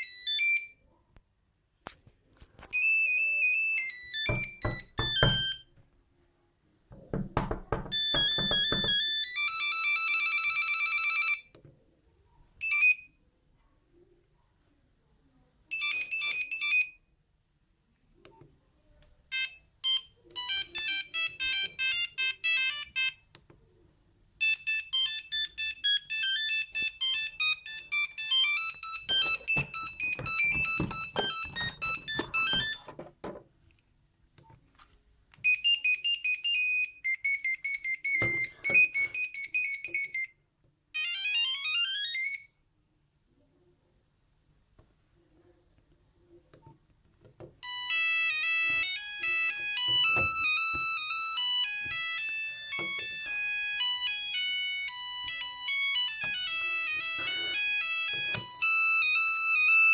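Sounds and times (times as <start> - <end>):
monophonic phone ringtone beeps: 0.0 - 0.8, 2.7 - 5.7, 7.8 - 11.5, 12.6 - 13.2, 15.7 - 17.1, 19.3 - 23.3, 24.4 - 32.9, 35.4 - 40.4, 41.0 - 42.6, 47.6 - 59.9.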